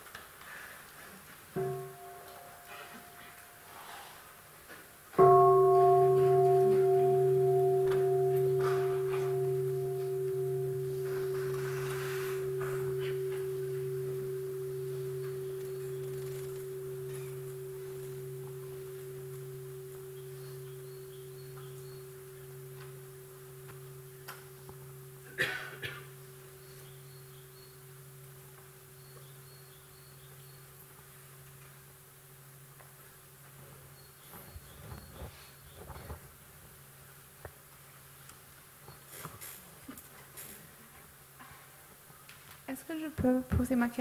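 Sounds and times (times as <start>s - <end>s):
bowl bell ringing: 1.6s - 3.7s, 5.2s - 31.9s.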